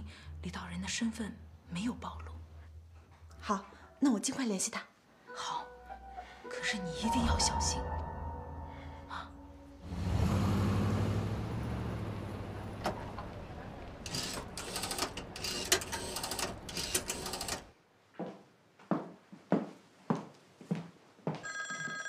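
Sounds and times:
rotary telephone dial clicking: 0:14.0 - 0:17.7.

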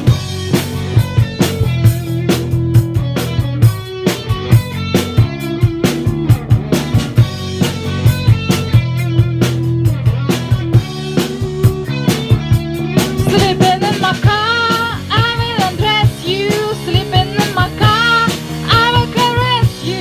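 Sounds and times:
drum beat: 0:00.0 - 0:20.0
guitar: 0:00.0 - 0:20.0
woman singing: 0:13.2 - 0:20.0.

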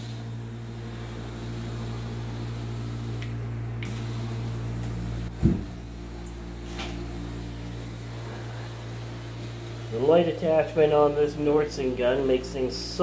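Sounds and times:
low machine hum: 0:00.0 - 0:13.0
low thump: 0:05.3 - 0:05.8.

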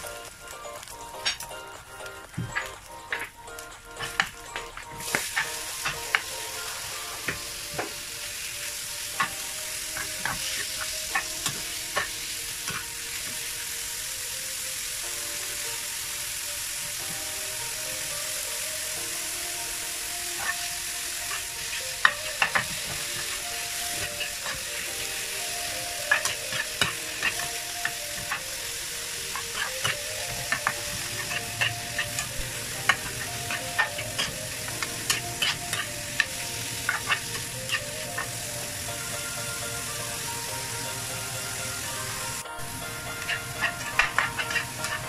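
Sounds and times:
food sizzling in a frying pan: 0:00.0 - 0:45.0
metal spatula scraping a pan: 0:09.2 - 0:13.1, 0:20.3 - 0:38.6, 0:43.0 - 0:45.0.

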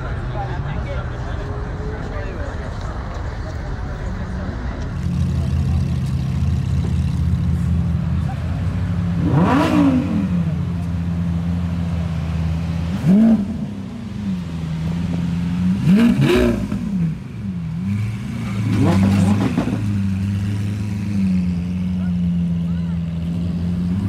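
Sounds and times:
sports car engine revving: 0:04.8 - 0:24.0.

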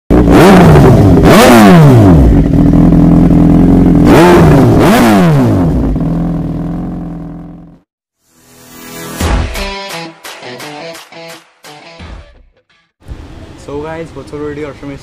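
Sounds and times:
motorcycle engine revving: 0:00.1 - 0:07.9
motorcycle engine idling: 0:02.2 - 0:04.0.

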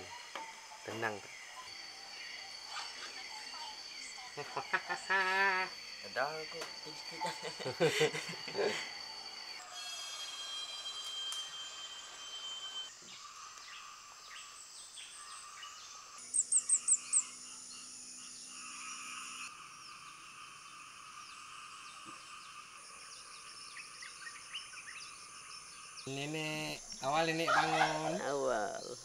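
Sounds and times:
insects and frogs trilling: 0:00.0 - 0:29.0
loud high chirps: 0:09.5 - 0:13.0.

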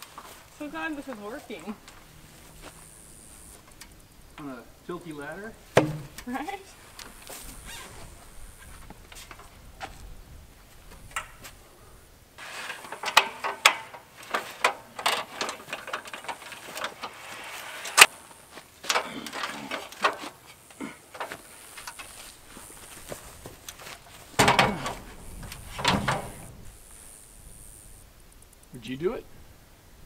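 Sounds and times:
metal ladder clicking and clattering: 0:12.4 - 0:18.2, 0:18.8 - 0:22.2, 0:23.6 - 0:26.5.

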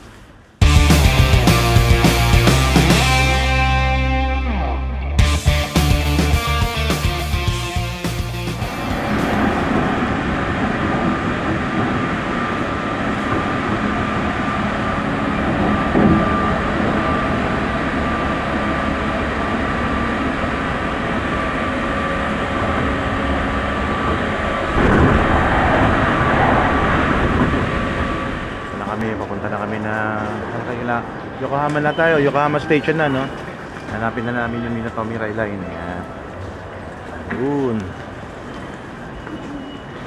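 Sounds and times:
train rumbling: 0:05.2 - 0:40.0
faint constant whine: 0:08.8 - 0:40.0.

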